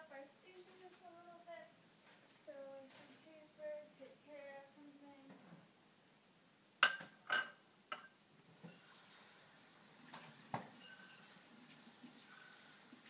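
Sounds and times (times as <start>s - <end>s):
soup sizzling in a saucepan: 8.6s - 13.0s.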